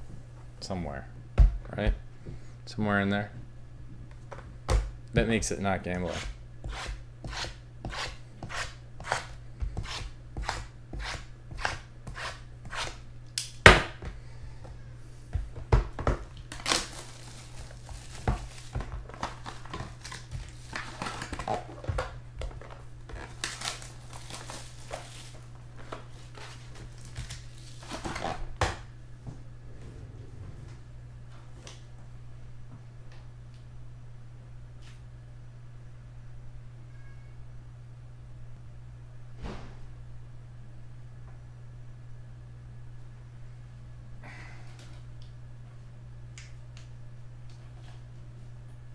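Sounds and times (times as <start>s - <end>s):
plastic wrap tearing and crinkling: 16.4s - 21.9s, 22.6s - 28.5s.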